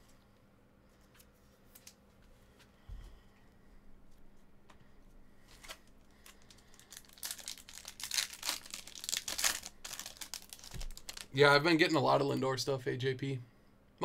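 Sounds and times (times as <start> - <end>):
foil wrapper tearing and crinkling: 5.6 - 11.4.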